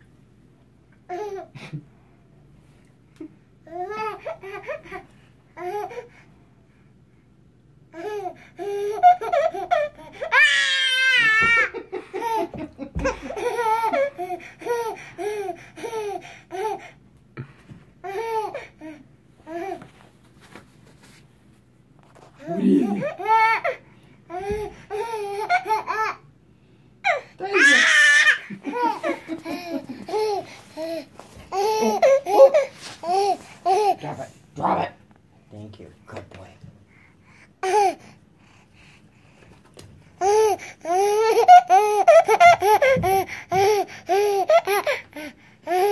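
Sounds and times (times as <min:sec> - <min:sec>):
baby laughing: 0:08.0 - 0:16.8, 0:22.4 - 0:26.2, 0:27.1 - 0:34.1, 0:40.2 - 0:45.9
baby laughing and squealing: 0:27.1 - 0:34.0, 0:40.2 - 0:45.0.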